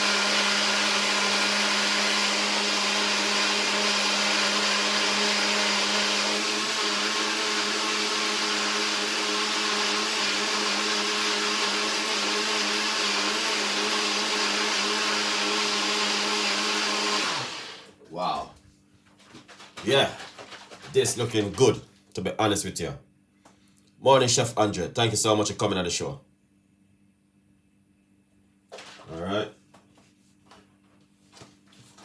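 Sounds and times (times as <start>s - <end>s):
blender running: 0.0s - 18.0s.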